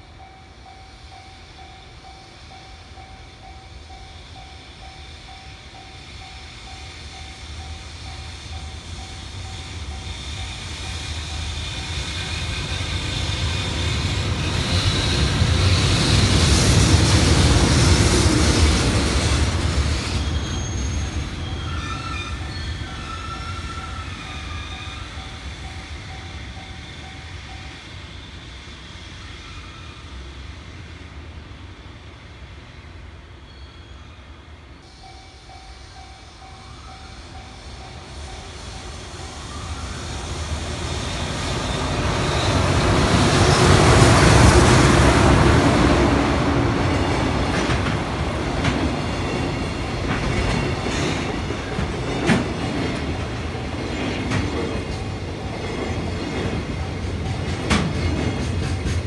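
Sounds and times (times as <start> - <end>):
crossing warning bell ringing: 0.0 - 12.1, 20.5 - 27.8, 34.8 - 39.4, 54.7 - 59.0
freight train rumble: 0.0 - 33.5, 34.1 - 59.0.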